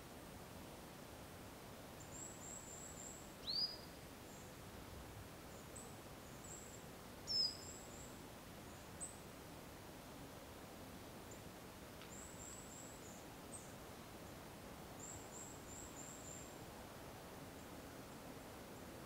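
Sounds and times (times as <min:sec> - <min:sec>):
faint woodland air hiss: 0:00.0 - 0:19.0
whistled bird calls: 0:03.4 - 0:03.9, 0:07.3 - 0:07.8.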